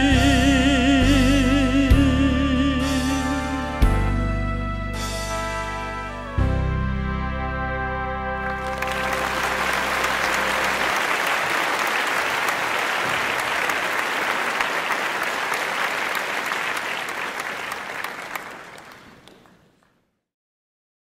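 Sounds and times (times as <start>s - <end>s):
audience applause: 8.4s - 19.9s.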